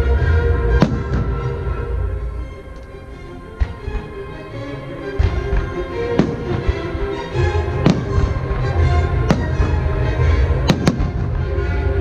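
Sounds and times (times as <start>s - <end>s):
music playing: 0.0s - 12.0s
fireworks bursting: 0.8s - 1.6s, 5.2s - 10.0s, 10.6s - 11.4s.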